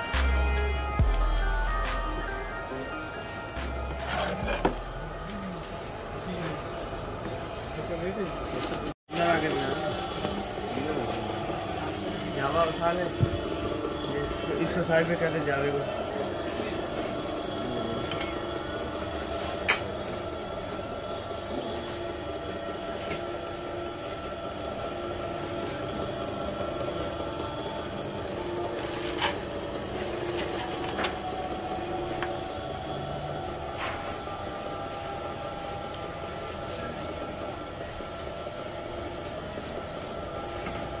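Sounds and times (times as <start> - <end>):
oil press mechanical hum: 9.1 - 41.0.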